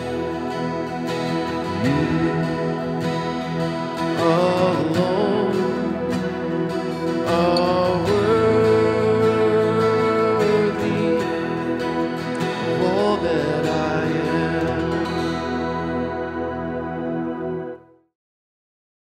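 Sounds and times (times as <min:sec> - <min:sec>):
strummed acoustic guitar: 0:00.0 - 0:17.6
man singing: 0:01.5 - 0:06.4, 0:07.2 - 0:15.6.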